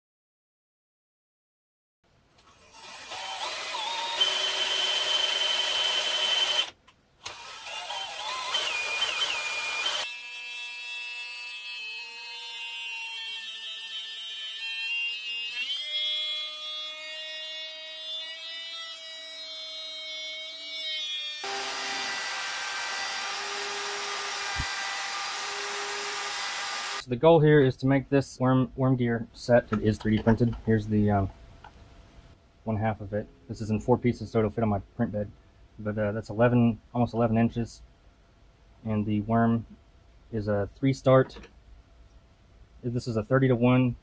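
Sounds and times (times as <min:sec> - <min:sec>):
grinder motor whine: 0:02.6 - 0:06.7, 0:07.3 - 0:10.2, 0:21.2 - 0:27.0
lathe running: 0:21.4 - 0:27.0.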